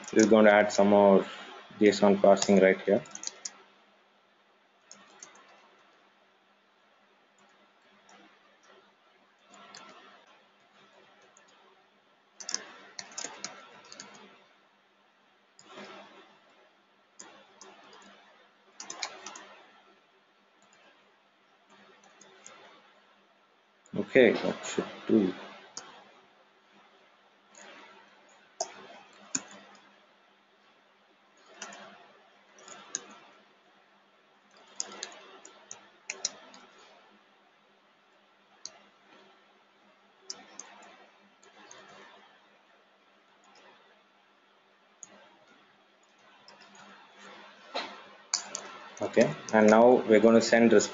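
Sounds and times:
computer keyboard typing: 0.0s - 3.6s, 4.8s - 5.8s, 9.4s - 10.2s, 12.4s - 14.4s, 17.2s - 19.8s, 21.7s - 22.8s, 27.5s - 29.9s, 31.4s - 32.0s, 32.6s - 33.4s, 34.5s - 37.0s, 40.3s - 42.3s, 45.0s - 47.6s, 48.3s - 50.9s.

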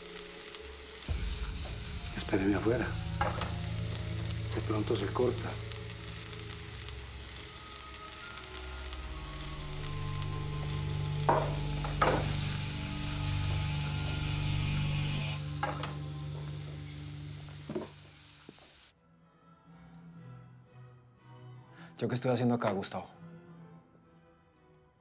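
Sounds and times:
food sizzling in a pan: 0.0s - 18.9s.

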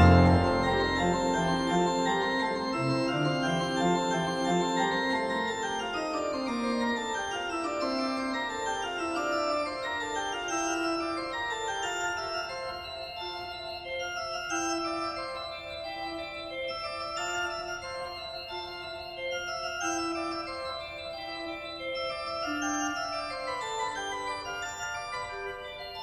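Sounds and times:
organ-like keyboard chords: 0.0s - 7.1s.

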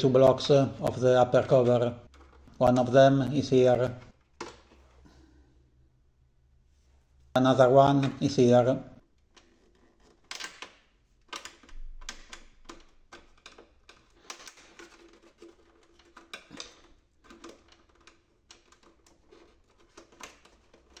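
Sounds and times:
plastic clicks taps and scrapes: 9.1s - 21.0s.

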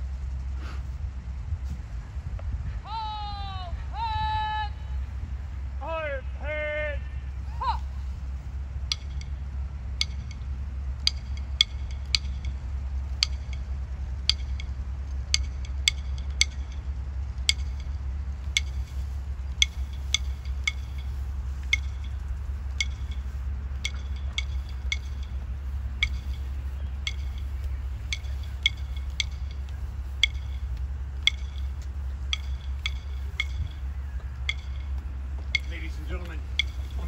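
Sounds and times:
steady low rumble: 0.0s - 37.0s
snare drum tapping: 10.0s - 13.7s, 19.6s - 37.0s.

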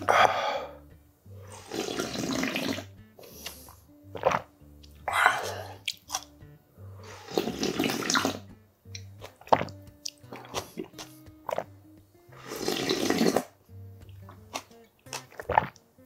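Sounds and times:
soft background music: 0.0s - 16.0s
slurping soup from a bowl: 1.4s - 4.5s, 5.1s - 6.3s, 7.0s - 11.7s, 12.3s - 13.6s, 14.3s - 15.8s
swallowing clicks: 3.4s - 6.4s, 8.0s - 11.8s.

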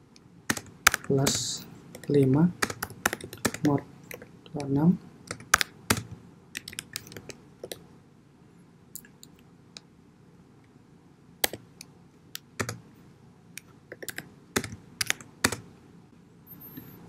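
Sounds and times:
computer keyboard typing: 0.5s - 7.8s, 12.4s - 12.8s, 13.9s - 15.6s.

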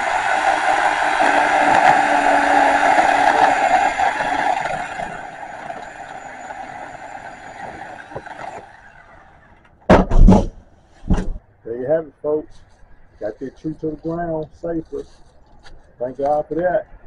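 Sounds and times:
electric chainsaw cutting wood: 0.0s - 9.7s.

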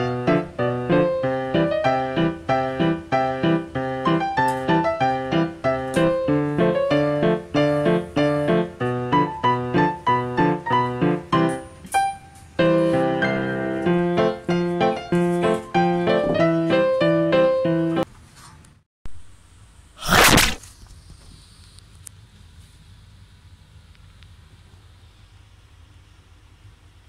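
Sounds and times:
piano music: 0.0s - 18.0s.

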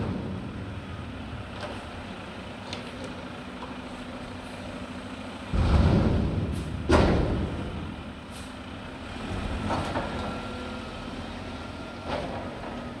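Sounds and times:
garbage truck diesel engine: 0.0s - 13.0s
air brake hisses: 8.3s - 8.6s.

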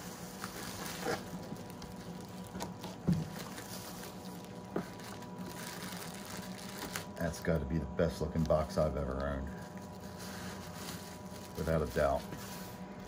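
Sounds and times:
plastic bag rustling: 0.0s - 13.0s.

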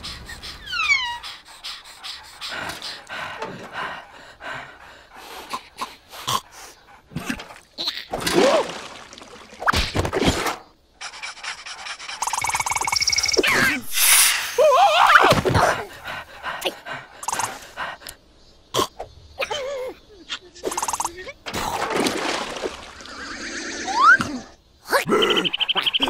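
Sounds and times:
voiced cries: 0.0s - 2.4s
cartoon characters panting: 0.0s - 7.6s, 15.8s - 18.2s.

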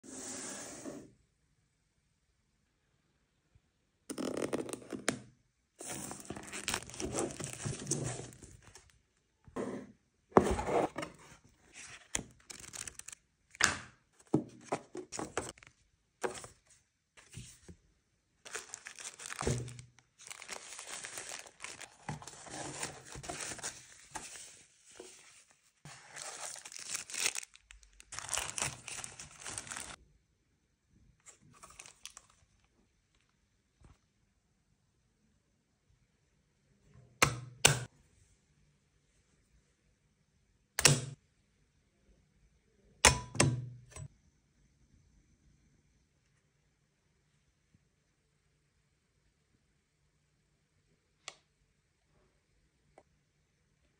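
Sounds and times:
cardboard and paper rustling: 5.8s - 8.9s, 10.4s - 13.2s, 14.2s - 17.8s, 18.5s - 30.0s, 31.3s - 32.4s.

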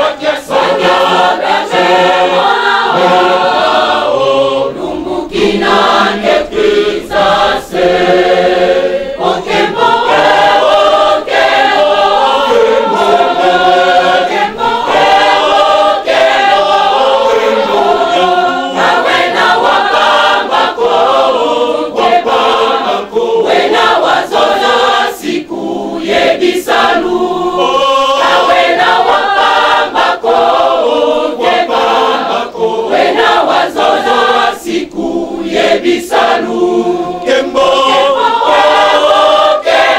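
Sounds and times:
large choir singing: 0.0s - 39.9s.

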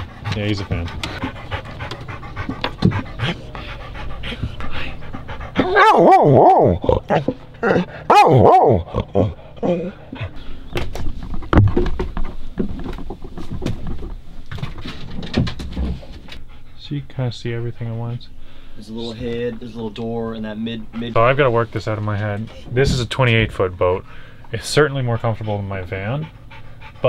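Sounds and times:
dog panting: 0.0s - 6.1s, 19.0s - 22.7s, 25.0s - 27.0s
dog whining: 4.9s - 10.3s.

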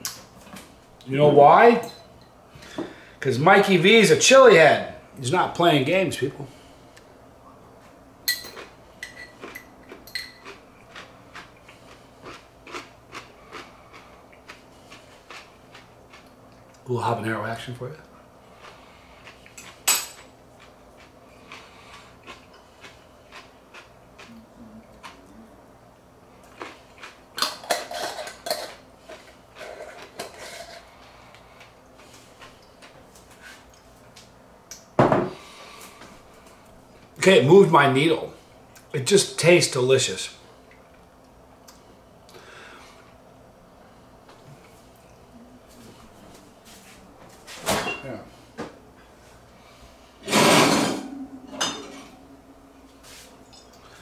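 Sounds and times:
pickle being chewed: 8.4s - 16.8s, 18.5s - 25.4s.

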